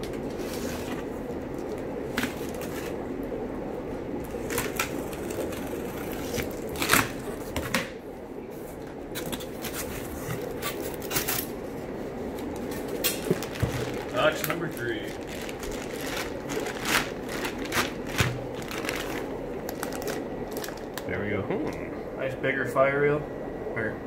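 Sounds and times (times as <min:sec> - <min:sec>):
steady low hum: 0:00.0 - 0:24.0
plastic wrap and tape tearing: 0:04.3 - 0:07.7, 0:09.2 - 0:11.6, 0:12.5 - 0:21.1.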